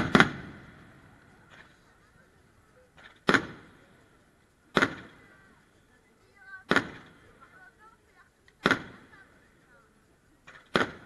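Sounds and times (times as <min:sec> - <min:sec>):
firework shells bursting: 0:00.0 - 0:01.8, 0:02.9 - 0:05.3.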